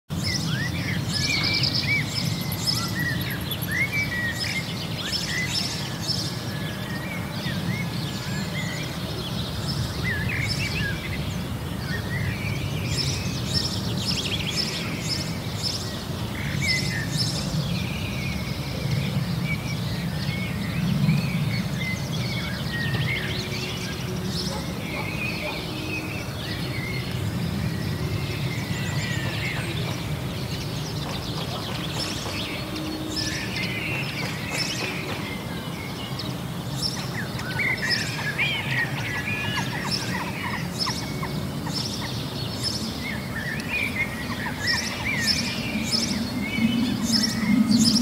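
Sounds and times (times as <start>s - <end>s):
songbirds singing: 0.1s - 48.0s
steady low rumble: 43.6s - 48.0s.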